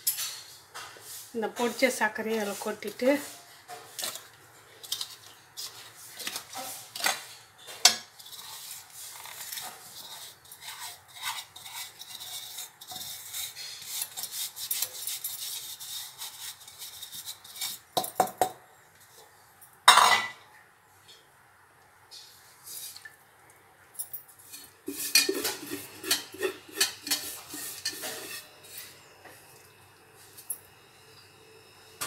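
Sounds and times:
spoon scraping in steel tumbler: 1.7s - 7.3s, 8.1s - 18.0s, 24.4s - 29.1s.

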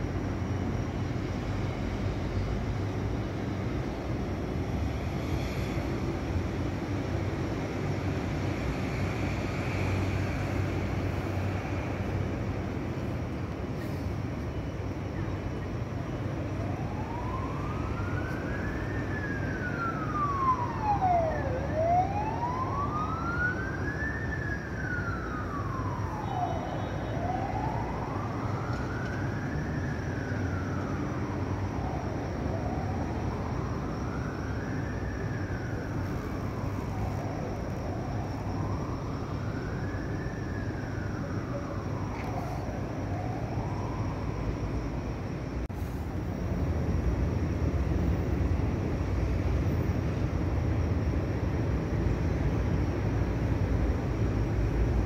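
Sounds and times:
low city hum: 0.0s - 55.0s
emergency siren wailing: 15.8s - 45.3s.

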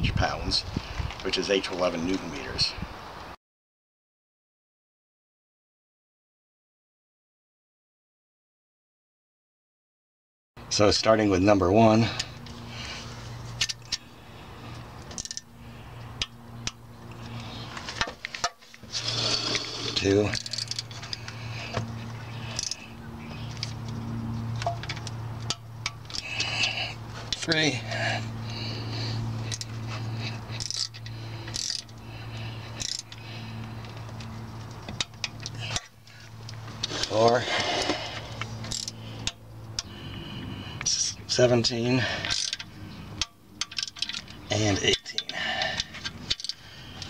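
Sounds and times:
low hum: 12.0s - 40.9s
wrench clicking: 15.2s - 15.4s, 22.5s - 22.8s, 30.6s - 31.9s, 32.8s - 33.2s, 38.7s - 39.9s, 42.2s - 44.3s.

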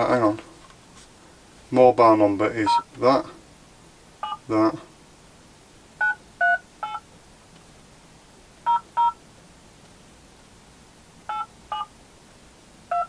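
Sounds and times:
phone keypad dialing tones: 11.3s - 11.9s.

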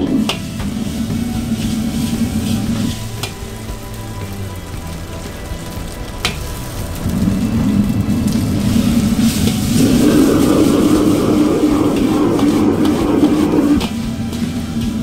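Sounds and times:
gas burner flame roaring: 0.0s - 15.0s.

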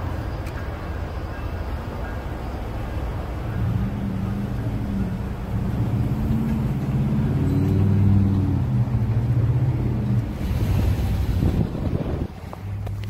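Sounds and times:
engine rumble with hum: 0.0s - 13.0s.

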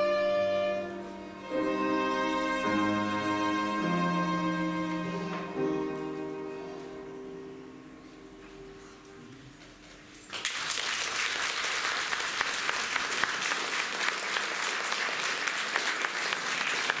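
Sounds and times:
violin cello and piano trio: 0.0s - 8.3s
audience applause: 10.3s - 17.0s.

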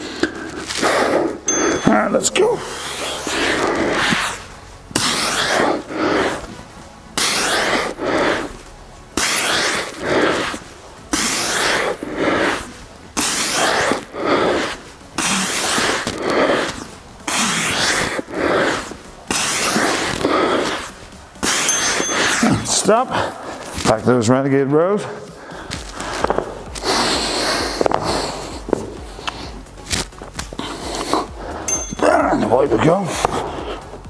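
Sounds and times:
man breathing hard: 21.9s - 23.8s, 25.0s - 32.0s.

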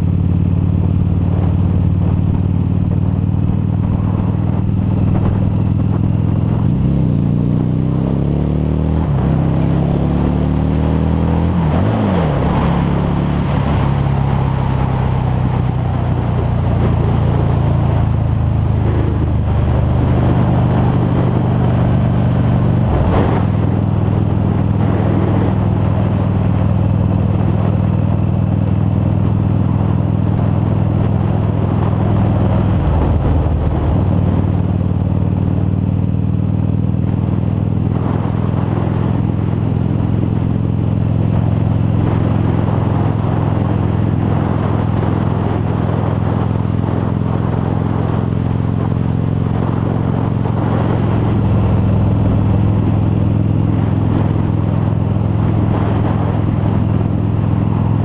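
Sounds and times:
motorcycle engine cruising: 0.0s - 58.0s.

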